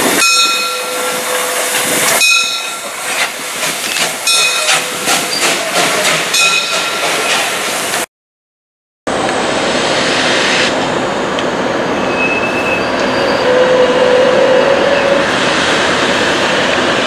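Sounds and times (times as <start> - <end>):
steam locomotive exhaust chuffing: 0.0 - 8.0
steam hissing: 0.8 - 8.1.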